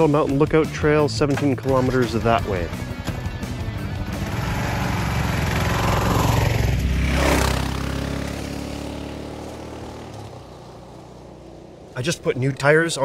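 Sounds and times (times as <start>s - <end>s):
motorcycle engine passing: 3.4s - 13.0s
tyres on gravel: 7.2s - 13.0s.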